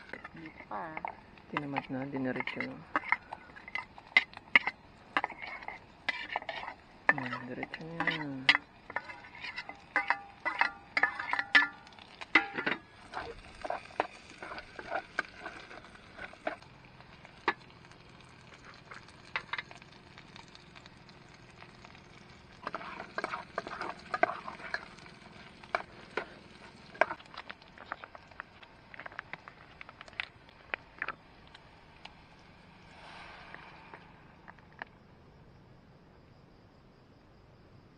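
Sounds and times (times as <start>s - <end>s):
faint sizzle: 0.0s - 34.0s
metal spoon clinking on pot: 1.0s - 16.6s, 22.6s - 25.0s.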